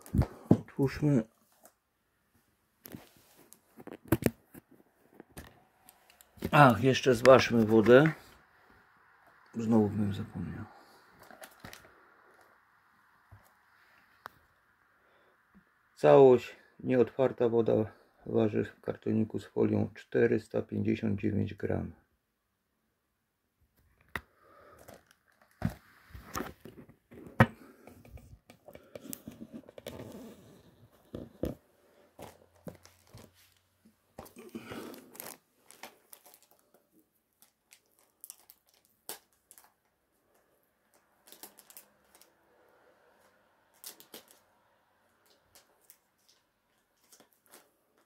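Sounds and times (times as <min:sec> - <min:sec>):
shrink-wrap crinkling and tearing: 0:11.2 - 0:11.9, 0:32.2 - 0:33.6, 0:34.2 - 0:40.0, 0:40.8 - 0:42.4, 0:43.7 - 0:47.8.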